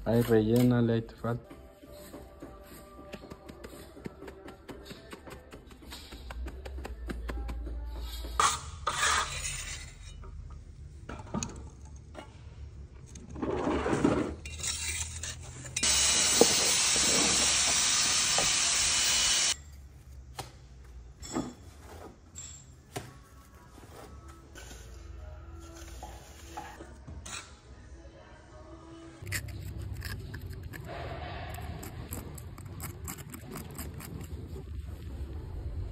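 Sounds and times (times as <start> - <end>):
hand tools scraping concrete: 8.4 - 10.2, 13.4 - 19.6
loud steady hiss: 15.8 - 19.6.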